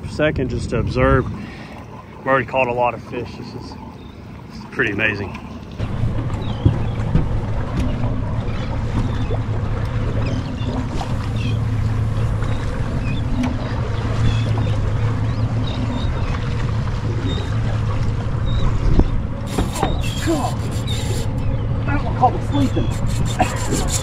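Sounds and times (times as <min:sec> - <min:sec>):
choppy water: 0:00.0 - 0:24.0
wind: 0:00.0 - 0:24.0
seabirds calling: 0:01.3 - 0:24.0
steady low hum: 0:05.8 - 0:24.0.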